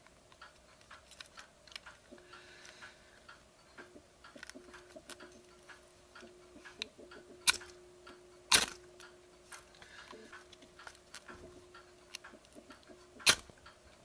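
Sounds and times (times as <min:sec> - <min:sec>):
metal clicks and rattles: 0:00.3 - 0:02.2.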